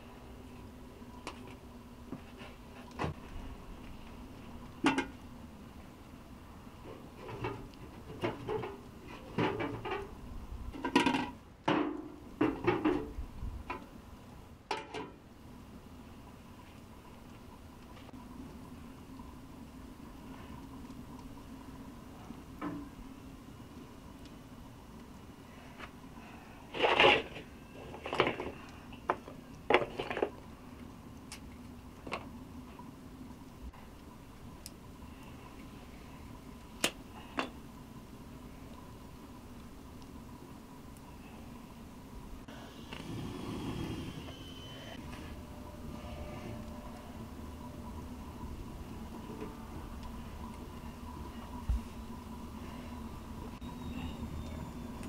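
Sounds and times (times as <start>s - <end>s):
metal pots and utensils clattering: 7.2s - 10.1s.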